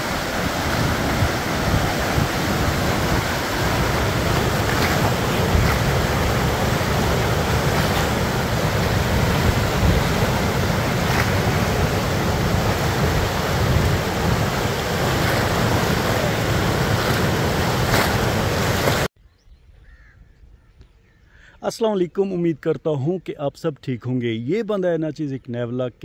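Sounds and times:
water rushing through sluice gates: 0:00.0 - 0:19.1.

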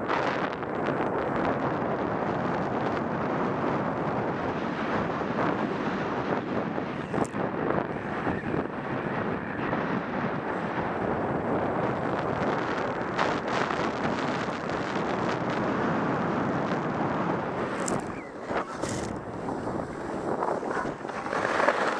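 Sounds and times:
wind rushing on microphone: 0:00.0 - 0:21.9
skis scraping over snow: 0:17.5 - 0:21.9.

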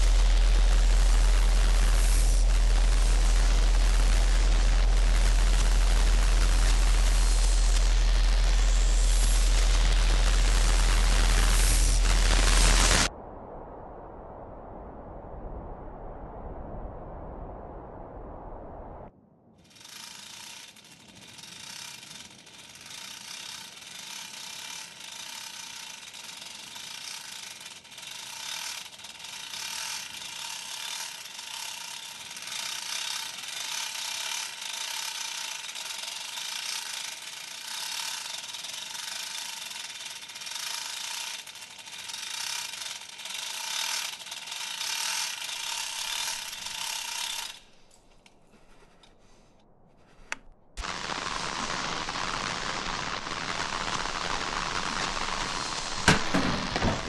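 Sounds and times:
radio static hiss: 0:00.0 - 0:13.1, 0:50.8 - 0:57.0
static crackles: 0:00.0 - 0:13.1, 0:50.8 - 0:57.0.

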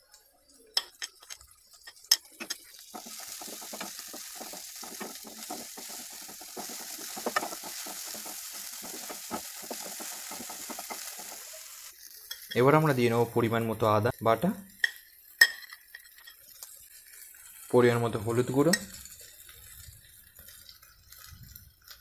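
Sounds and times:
vegetables sizzling in oil: 0:00.2 - 0:22.0
spatula stirring and scraping: 0:00.8 - 0:12.6.

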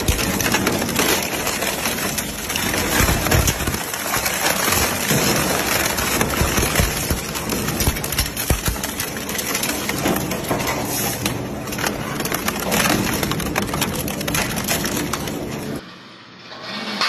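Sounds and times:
shredder crunching metal and rubber: 0:00.0 - 0:15.8.

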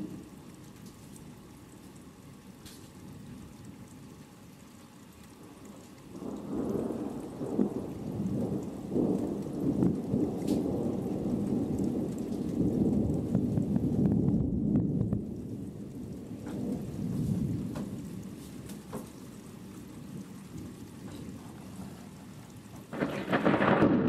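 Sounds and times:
steady rain: 0:00.0 - 0:24.0
rolling thunder: 0:06.1 - 0:18.4, 0:22.5 - 0:24.0.

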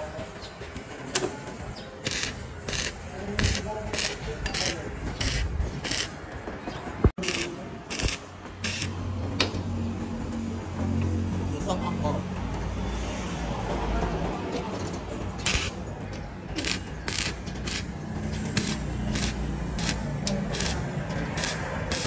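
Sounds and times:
welding arc crackling: 0:02.0 - 0:06.2, 0:07.2 - 0:08.9, 0:15.4 - 0:15.8, 0:16.6 - 0:22.0.

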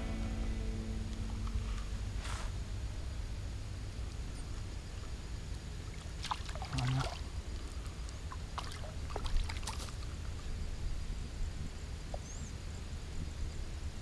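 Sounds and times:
steady low rumble: 0:00.0 - 0:14.0
fish splashing at surface: 0:06.0 - 0:10.2.

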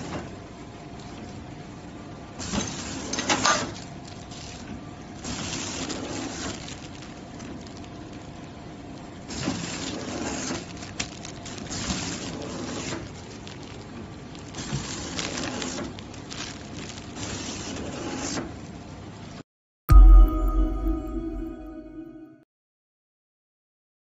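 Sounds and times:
packing machine running: 0:02.4 - 0:18.2
plastic film crinkling: 0:02.5 - 0:18.1.

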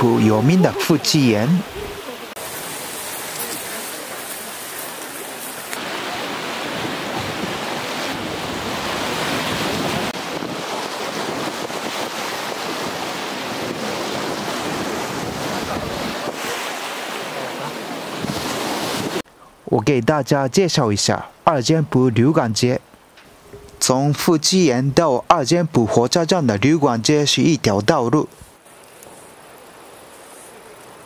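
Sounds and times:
sea waves breaking on rocks: 0:00.0 - 0:19.2
wind noise on microphone: 0:06.4 - 0:16.7.

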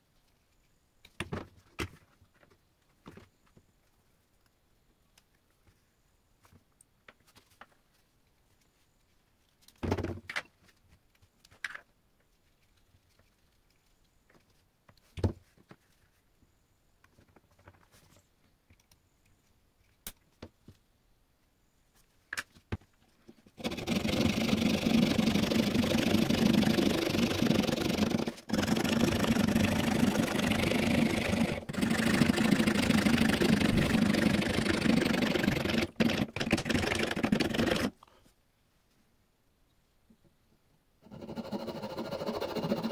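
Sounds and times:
fret saw rasping through wood: 0:23.6 - 0:36.4, 0:41.0 - 0:42.9.

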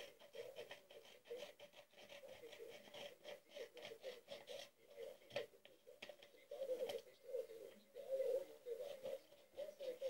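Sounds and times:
scissors snipping paper: 0:00.0 - 0:06.2.

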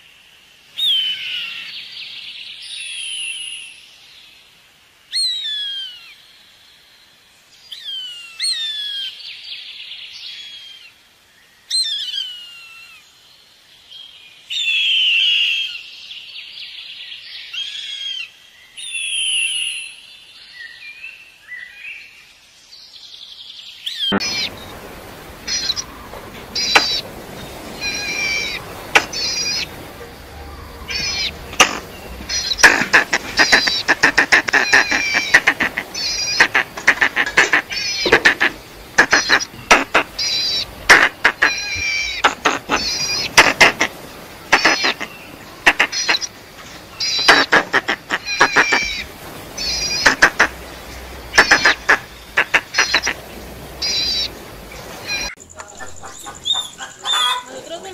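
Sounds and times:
eagle calling: 0:23.9 - 0:43.9, 0:55.0 - 0:57.8.

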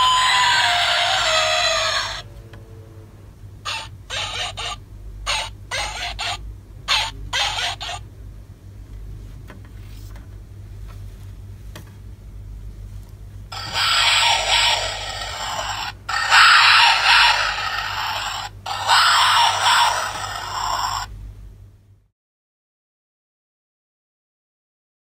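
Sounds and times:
recorded lion roar through small speaker: 0:00.0 - 0:03.0, 0:13.6 - 0:21.1.

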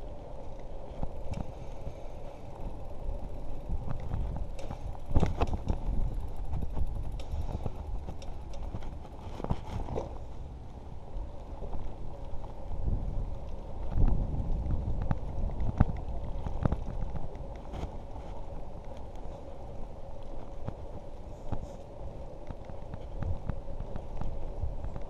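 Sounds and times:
bicycle tyres rumbling on paving: 0:00.0 - 0:25.0
bicycle clattering over bumps: 0:00.8 - 0:10.4.

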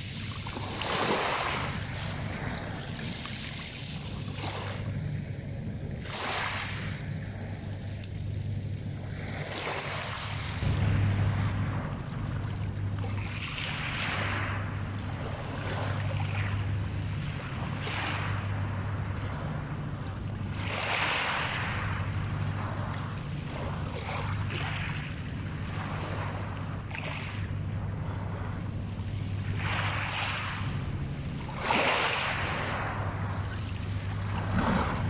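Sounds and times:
waves washing on pebble beach: 0:00.0 - 0:04.9, 0:06.0 - 0:07.1, 0:12.8 - 0:24.9, 0:29.2 - 0:35.0
low rumble: 0:06.8 - 0:35.0.

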